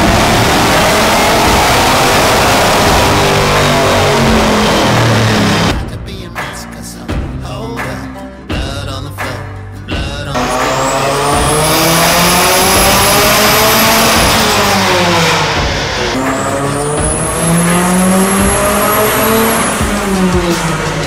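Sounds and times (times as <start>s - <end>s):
car engine revving at full throttle: 0.0s - 5.8s, 10.3s - 21.0s
high turbo whine: 0.0s - 5.8s, 10.3s - 21.0s.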